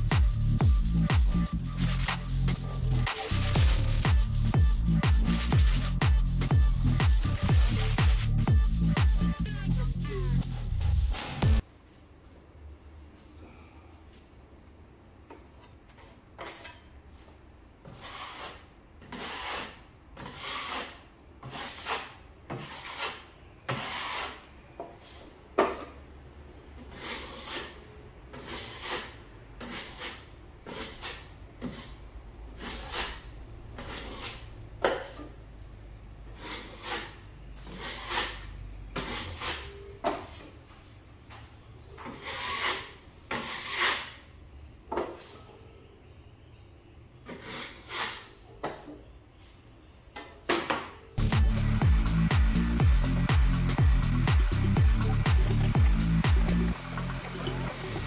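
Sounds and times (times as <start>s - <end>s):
taping knife rasping on drywall: 0.4s - 6.4s, 17.8s - 24.5s, 26.9s - 32.0s, 32.6s - 35.3s, 36.4s - 40.5s, 42.0s - 44.2s, 47.3s - 48.3s.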